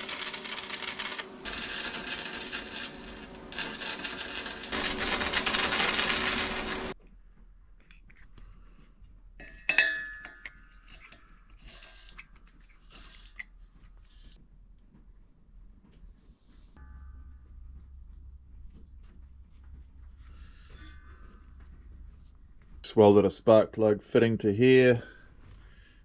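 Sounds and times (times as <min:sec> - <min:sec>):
arc welding crackling: 0:00.0 - 0:07.0
sharp metallic clink: 0:09.4 - 0:10.8.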